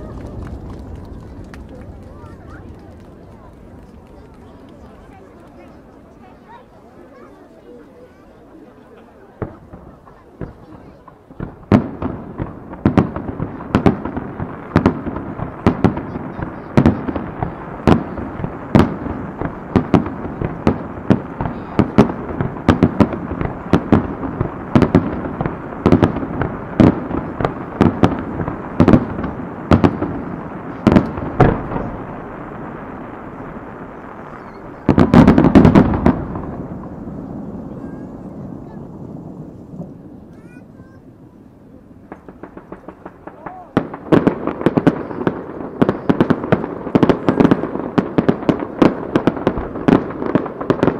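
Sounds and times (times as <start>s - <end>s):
rolling rumble: 0.0s - 6.3s
firework shells bursting: 11.4s - 37.8s.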